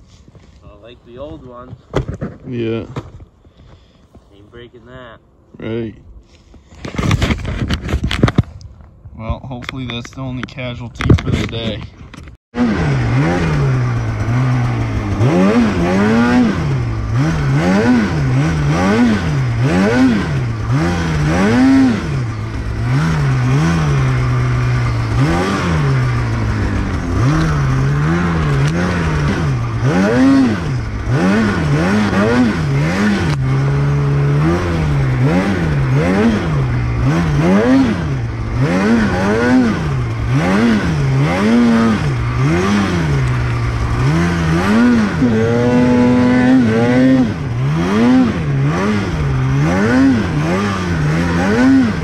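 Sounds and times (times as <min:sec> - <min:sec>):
snowmobile engine revving: 0:12.6 - 0:52.0.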